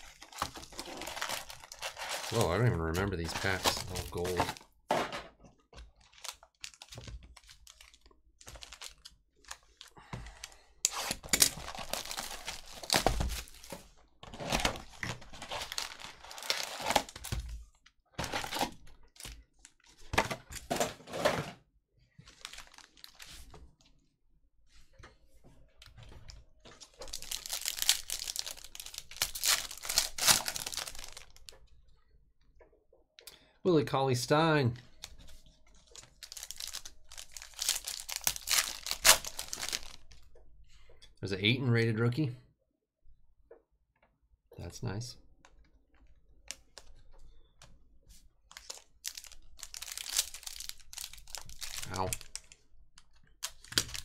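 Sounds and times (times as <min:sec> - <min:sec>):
card packs being torn open: 0:00.0 - 0:04.6, 0:06.0 - 0:09.9, 0:10.9 - 0:17.4, 0:22.3 - 0:23.2, 0:27.0 - 0:31.4, 0:36.0 - 0:40.0, 0:48.6 - 0:52.5, 0:53.4 - 0:54.0
foil crinkling: 0:00.0 - 0:04.6, 0:06.0 - 0:09.9, 0:11.0 - 0:13.8, 0:14.5 - 0:17.4, 0:22.2 - 0:23.3, 0:27.0 - 0:31.4, 0:35.8 - 0:40.1, 0:48.6 - 0:52.6, 0:53.4 - 0:54.0.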